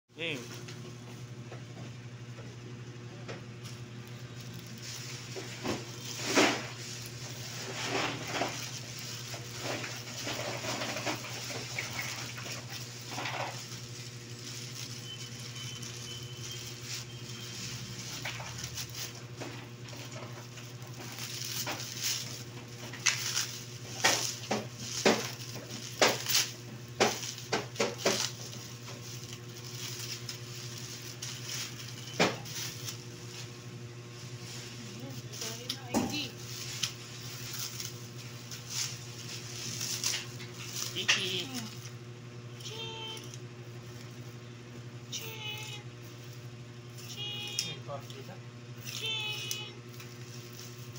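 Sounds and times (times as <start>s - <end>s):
steady low hum: 0.1s - 50.9s
plastic packaging crinkling: 3.5s - 44.2s
scissors cutting plastic: 5.8s - 33.0s.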